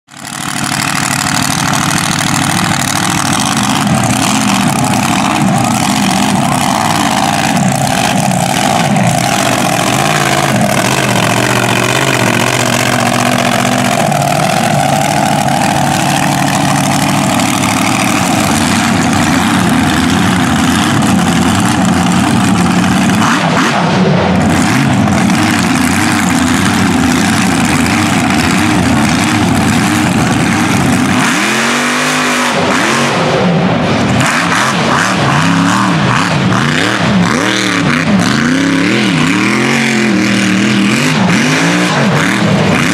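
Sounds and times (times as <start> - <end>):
truck engine running loudly: 0.0 - 42.9.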